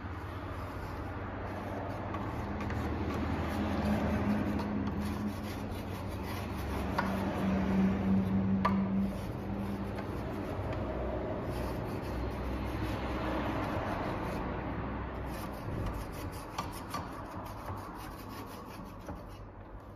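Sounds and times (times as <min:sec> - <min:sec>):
hands rubbing metal: 0:00.0 - 0:14.6.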